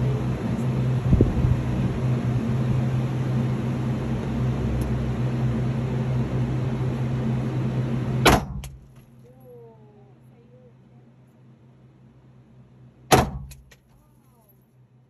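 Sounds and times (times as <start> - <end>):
mechanical drone: 0.0 - 9.0.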